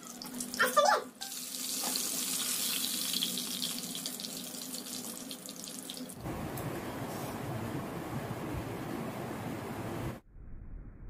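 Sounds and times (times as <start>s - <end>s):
chicken sizzling in hot oil: 0.0s - 6.2s.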